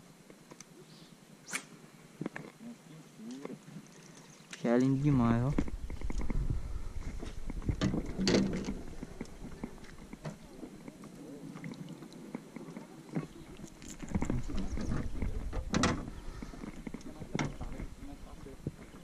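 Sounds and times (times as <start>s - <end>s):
clicks and knocks against kayak: 7.1s - 18.0s.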